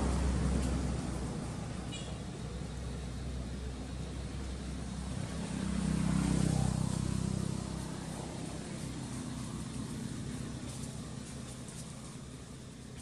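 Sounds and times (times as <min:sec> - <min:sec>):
outdoor background noise: 0:00.0 - 0:13.0
vehicle engine passing by: 0:00.0 - 0:13.0.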